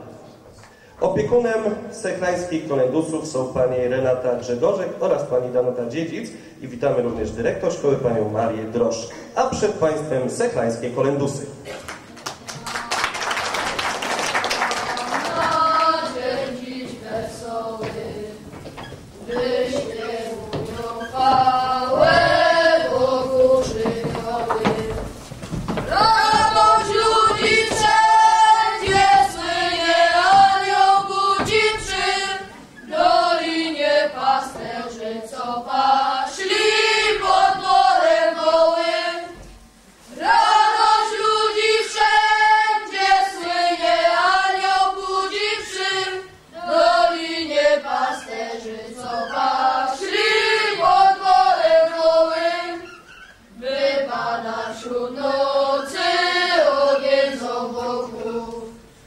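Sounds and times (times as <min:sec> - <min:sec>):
children singing in unison: 0:13.2 - 0:39.4, 0:40.1 - 0:59.0.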